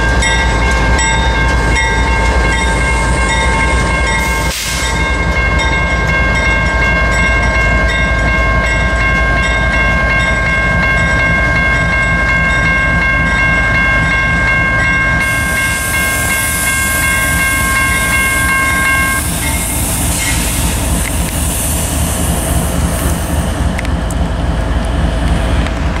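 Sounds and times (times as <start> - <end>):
electronic crossing bell ringing: 0.0 - 19.7
diesel locomotive rumble: 0.0 - 26.0.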